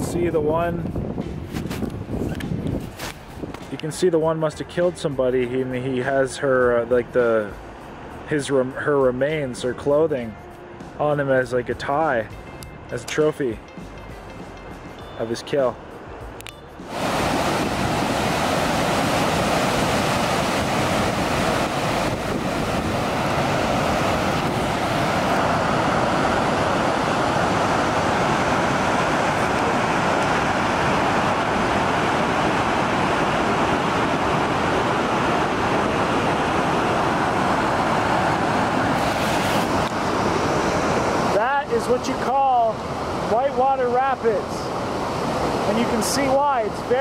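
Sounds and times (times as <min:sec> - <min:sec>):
water rushing over rocks: 0:16.8 - 0:47.0.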